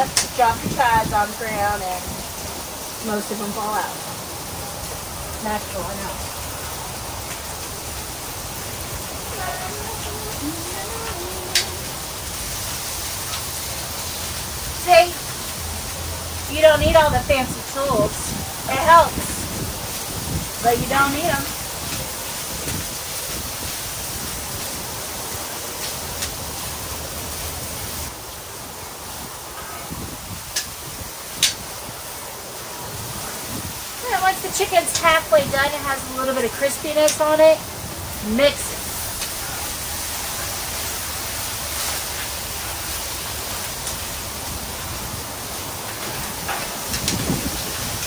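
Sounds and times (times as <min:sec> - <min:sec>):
wind rumble on microphone: 0:00.0 - 0:03.0, 0:05.3 - 0:48.0
chicken sizzling on griddle: 0:07.2 - 0:17.0, 0:38.4 - 0:48.0.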